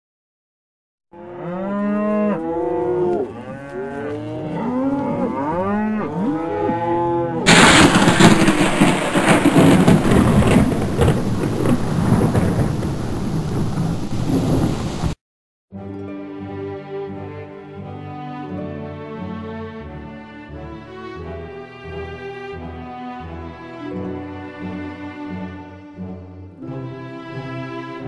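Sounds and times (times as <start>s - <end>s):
cattle mooing: 1.2s - 7.5s
heavy rain: 7.5s - 15.2s
rumbling thunder: 7.5s - 15.2s.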